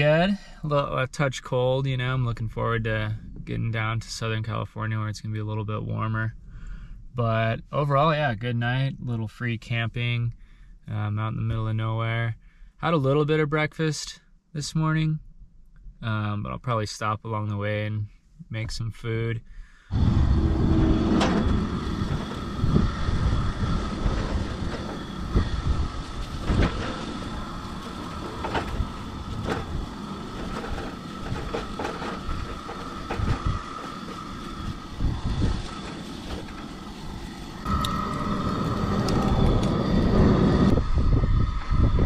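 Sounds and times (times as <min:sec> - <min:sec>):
low rumble: 0:19.8 - 0:42.0
stove hiss: 0:19.9 - 0:42.0.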